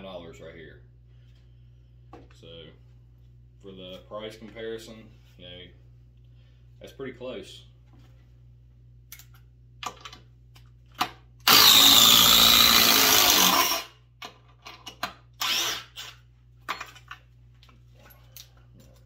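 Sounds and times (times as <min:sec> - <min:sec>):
impact driver driving screw into wood: 0:11.4 - 0:13.9, 0:15.4 - 0:16.2.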